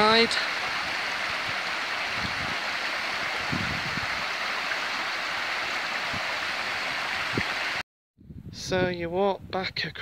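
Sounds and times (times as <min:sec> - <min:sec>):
small waterfall splashing: 0:00.0 - 0:07.8.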